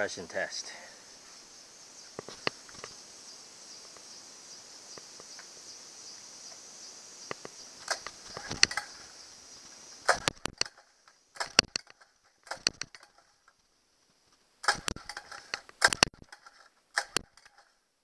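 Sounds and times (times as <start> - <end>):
insects buzzing: 0.0 - 17.8
clicks and knocks of handling motor: 10.1 - 13.3, 14.6 - 17.7.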